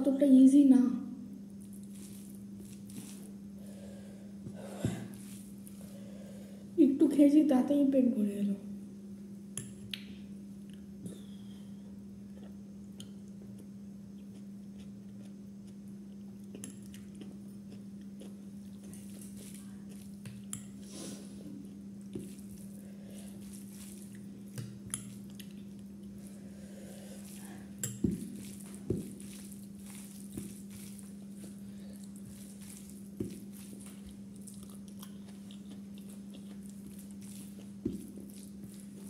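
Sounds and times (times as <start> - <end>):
steady low hum: 0.0 - 39.0
chewing: 12.3 - 20.8, 21.6 - 39.0.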